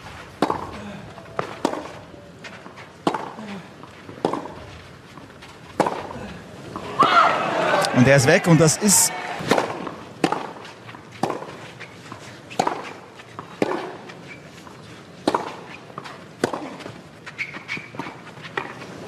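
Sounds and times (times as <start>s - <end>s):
tennis ball struck by rackets: 0.4s - 0.8s, 1.4s - 2.0s, 3.0s - 3.4s, 4.2s - 4.7s, 5.8s - 6.2s, 9.4s - 10.6s, 11.2s - 11.6s, 12.5s - 14.0s, 15.2s - 15.6s, 16.4s - 16.8s.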